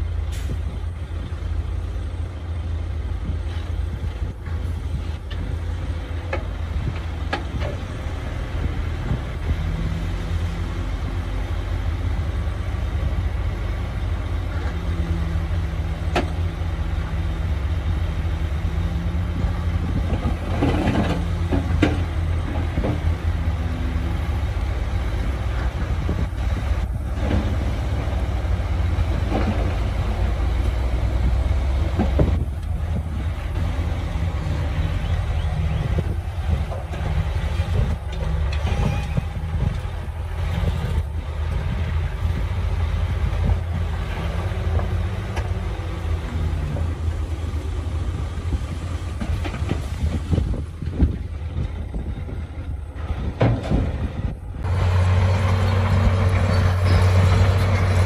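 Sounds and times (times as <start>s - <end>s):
diesel machinery rumbling: 0.0s - 58.0s.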